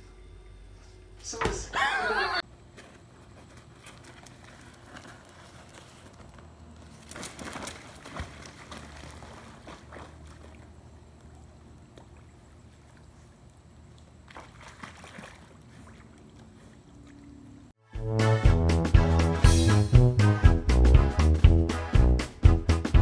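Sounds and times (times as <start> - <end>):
dog splashing in pool water: 6.8 - 17.7.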